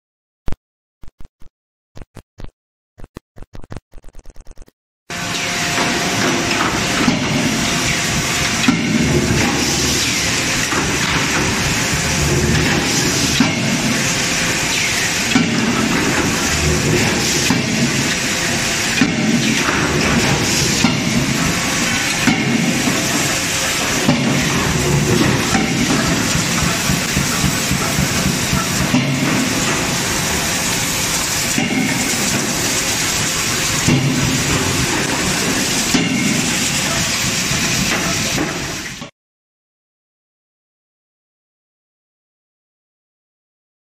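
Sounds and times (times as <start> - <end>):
constant loud hiss: 5.2 - 39.0
forging hammer heavy blows: 15.2 - 32.8.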